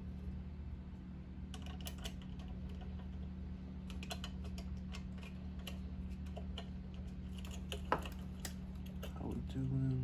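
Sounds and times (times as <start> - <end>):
steady low hum: 0.0 - 10.0
fingers clicking and tapping parts: 3.8 - 9.2.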